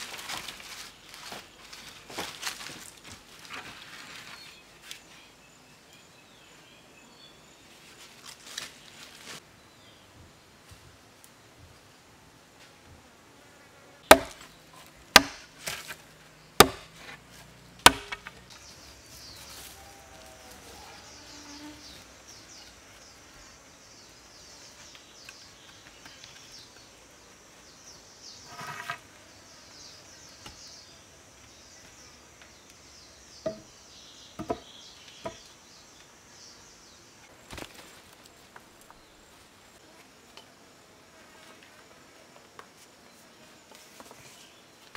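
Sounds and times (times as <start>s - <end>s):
insects buzzing: 11.9s - 44.8s
chopping into wood: 14.1s - 14.5s, 15.1s - 16.0s, 16.6s - 16.9s, 17.8s - 18.4s, 33.5s - 33.7s, 34.4s - 35.4s.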